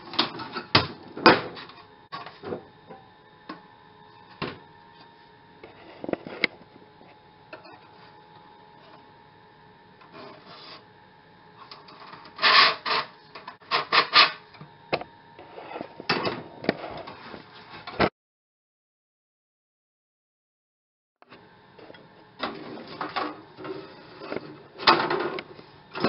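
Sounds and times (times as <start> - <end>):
steel blade scraping and rubbing: 12.4 - 14.4.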